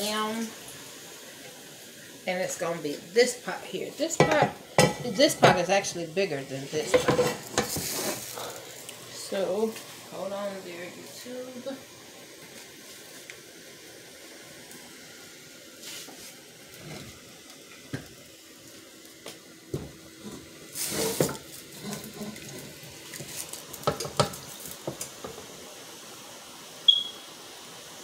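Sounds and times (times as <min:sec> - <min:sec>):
metal pots and spoon clattering: 0:04.2 - 0:05.7, 0:06.8 - 0:07.8.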